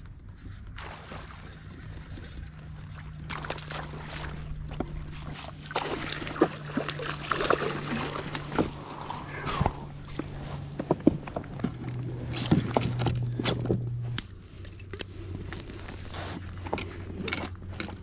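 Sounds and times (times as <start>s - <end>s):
steady low hum: 0.0s - 18.0s
water splashing: 0.7s - 10.7s.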